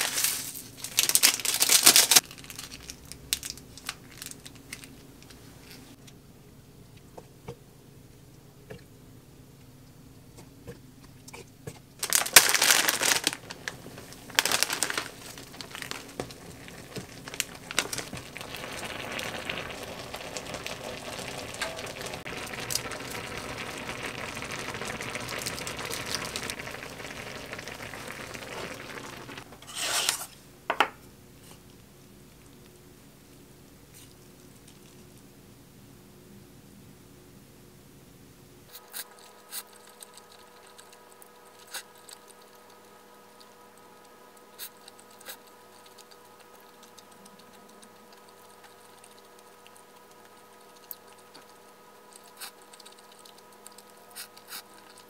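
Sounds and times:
plastic packaging crinkling: 0:00.0 - 0:05.8, 0:12.0 - 0:29.4
soup simmering: 0:12.0 - 0:30.2, 0:40.2 - 0:55.0.

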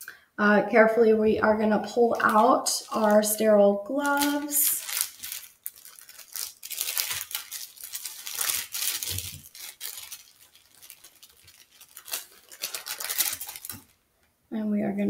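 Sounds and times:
paper wrapper rustling: 0:02.0 - 0:14.0.

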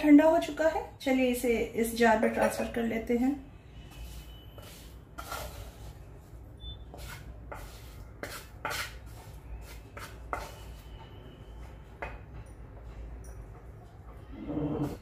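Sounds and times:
wooden spatula scraping a pan: 0:03.8 - 0:11.2.

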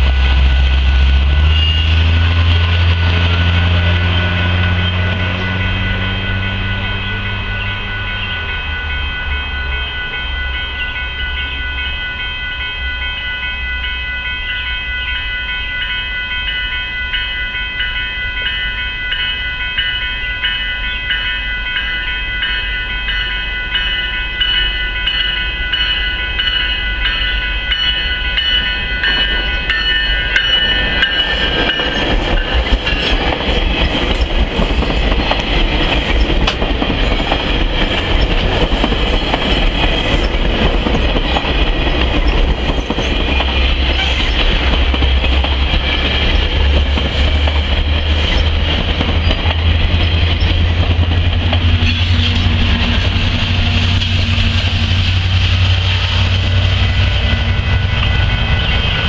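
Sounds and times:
train horn: 0:00.0 - 0:09.1
diesel locomotive hum: 0:00.0 - 0:59.0
train coaches rumbling on rails: 0:00.0 - 0:59.0.

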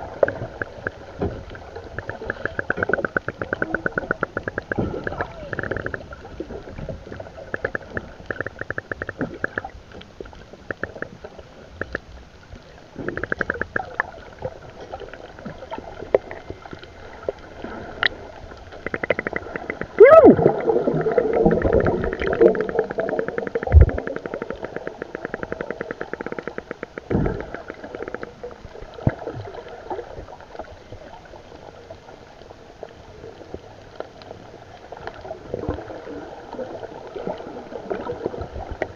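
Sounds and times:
bubbles gurgling: 0:00.0 - 0:12.1, 0:12.9 - 0:31.4, 0:34.9 - 0:38.9
muffled underwater rumble: 0:00.0 - 0:38.9
rapid ticking: 0:01.9 - 0:06.2, 0:07.4 - 0:09.7, 0:21.6 - 0:28.3.

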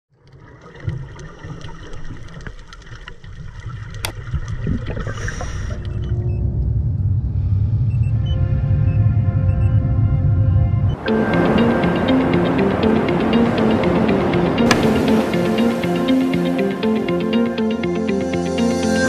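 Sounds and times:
deep low rumble: 0:04.6 - 0:11.0
sharp crack: 0:14.6 - 0:16.8.

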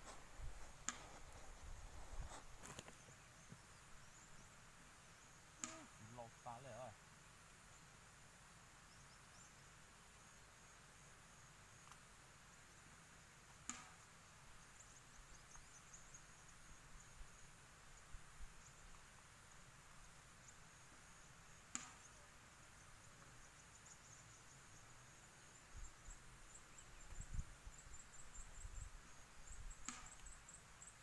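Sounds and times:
sharp snaps: 0:05.6 - 0:06.0, 0:13.6 - 0:14.0, 0:21.7 - 0:22.1, 0:29.8 - 0:30.3
high insect chirping: 0:14.2 - 0:31.0.

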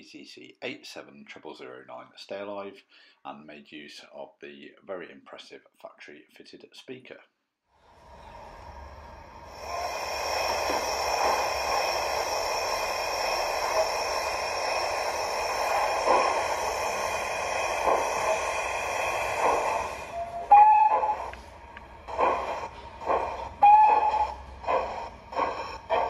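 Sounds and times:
soft steam puffs: 0:07.8 - 0:26.0
steam hiss: 0:07.9 - 0:26.0.

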